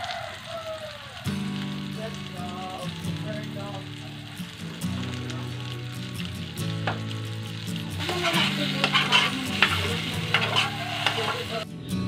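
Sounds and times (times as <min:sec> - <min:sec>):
eggplant sizzling in oil: 0:00.0 - 0:11.7
spoon scraping a pan: 0:08.0 - 0:11.6.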